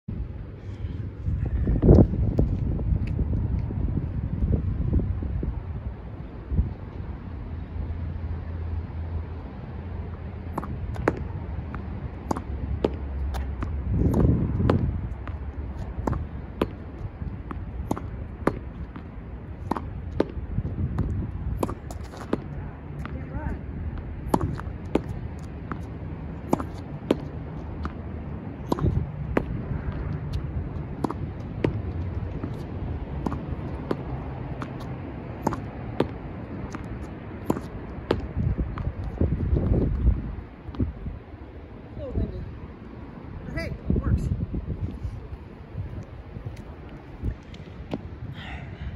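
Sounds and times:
steady low hum: 0:00.1 - 0:43.4
wind rumble on microphone: 0:00.1 - 0:48.9
tennis ball hitting and bouncing: 0:10.0 - 0:41.0, 0:46.5 - 0:48.1.

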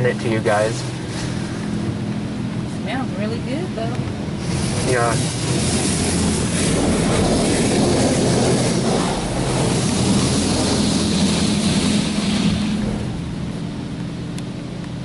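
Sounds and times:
low machine hum: 0:00.0 - 0:15.0
water jets drumming on car: 0:00.0 - 0:15.0.

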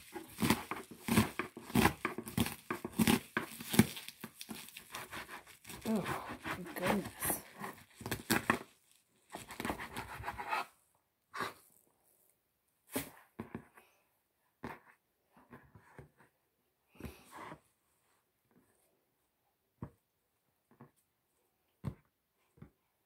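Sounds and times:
leaves tearing and rustling: 0:00.2 - 0:05.0.

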